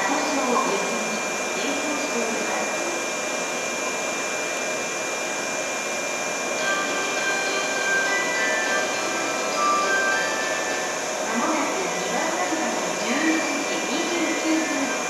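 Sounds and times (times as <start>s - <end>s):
thin steady whine: 0.0s - 15.0s
ventilation machinery rushing hum: 0.0s - 15.0s
faint chime melody: 6.6s - 11.0s.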